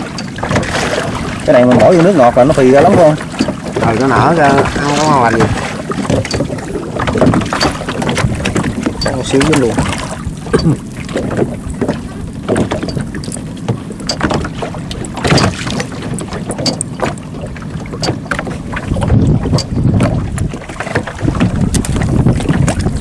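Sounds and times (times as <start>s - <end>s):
water splashing and dripping: 0.0s - 23.0s
wind on microphone: 0.0s - 23.0s
line clicks: 12.8s - 17.2s.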